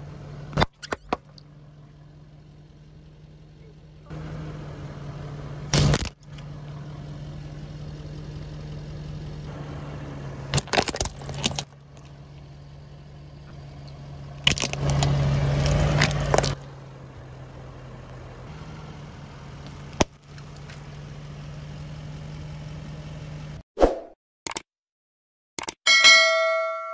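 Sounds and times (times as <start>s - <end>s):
car engine idling: 0.0s - 23.6s
tyre crushing plastic toys: 10.6s - 12.1s, 14.4s - 16.6s.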